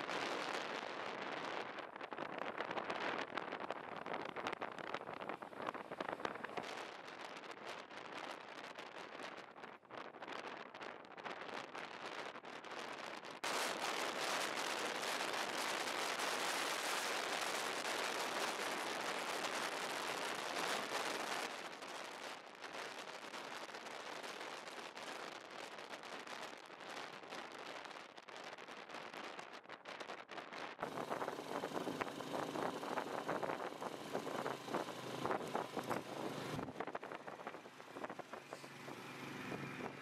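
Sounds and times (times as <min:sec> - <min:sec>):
wind noise on microphone: 0:00.0 - 0:40.0
road noise: 0:30.8 - 0:40.0.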